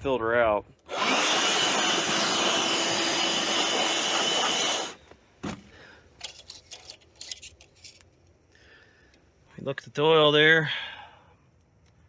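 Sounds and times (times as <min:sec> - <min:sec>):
electric blower whining: 0:00.9 - 0:05.0.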